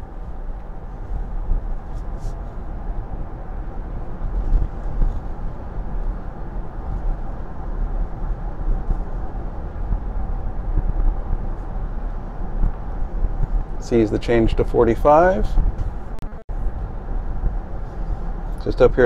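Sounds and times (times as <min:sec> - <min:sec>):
road and tyre rumble: 0:00.0 - 0:19.0.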